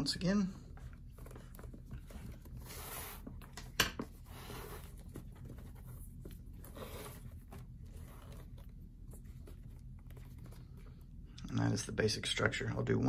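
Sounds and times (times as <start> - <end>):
leather lace scraping through loops: 4.2 - 10.9.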